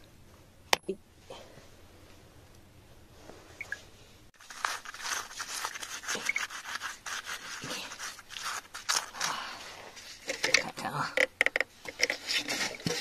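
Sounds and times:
fingers scraping mud off stone: 0:04.6 - 0:09.2.

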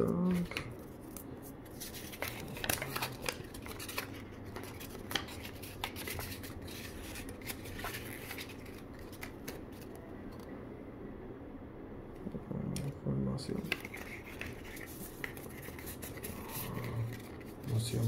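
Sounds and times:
paper and cardboard box handling: 0:01.7 - 0:09.9.

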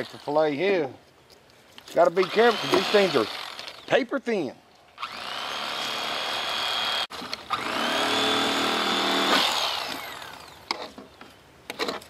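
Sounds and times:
electric knife motor whine: 0:02.2 - 0:03.8, 0:05.0 - 0:10.7.

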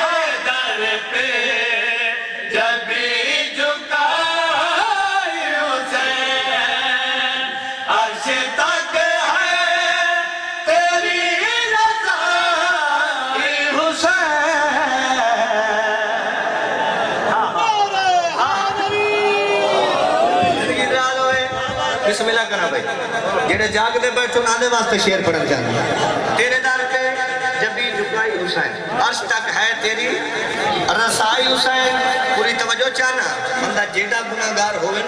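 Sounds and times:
man chanting unaccompanied: 0:00.0 - 0:16.6.

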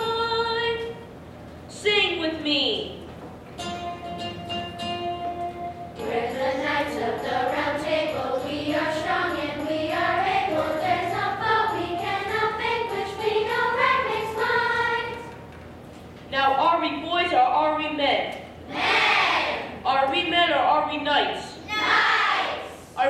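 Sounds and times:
children's choir singing: 0:06.0 - 0:15.4.

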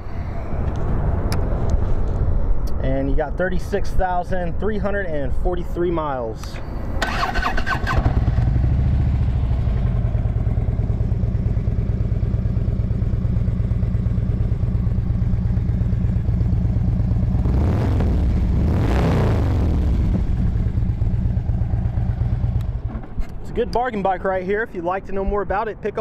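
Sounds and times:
motorcycle engine revving: 0:06.9 - 0:23.2
motorcycle engine idling: 0:07.0 - 0:17.4, 0:19.8 - 0:23.2.

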